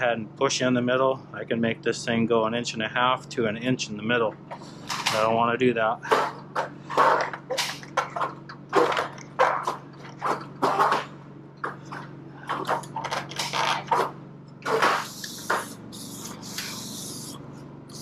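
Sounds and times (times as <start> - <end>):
metal scraping and rattling: 6.0 - 15.7.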